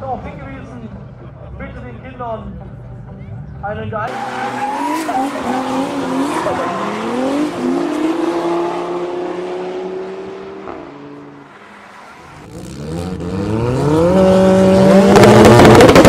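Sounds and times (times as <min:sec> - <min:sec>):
race car engines accelerating: 0:04.1 - 0:16.0.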